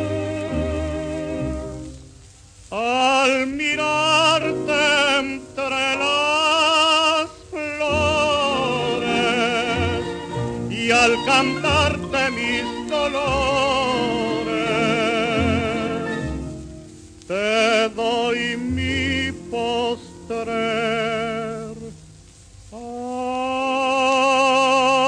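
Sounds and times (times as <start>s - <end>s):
tenor voice singing: 0.0s - 1.9s, 2.7s - 16.6s, 17.3s - 22.0s, 22.7s - 25.0s
instrumental accompaniment: 7.3s - 22.6s.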